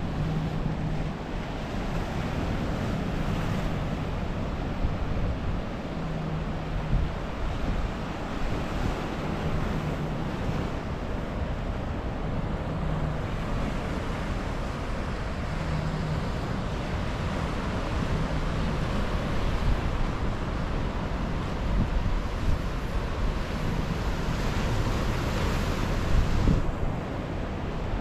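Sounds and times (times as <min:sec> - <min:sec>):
wind buffeting microphone: 0:16.6 - 0:28.0.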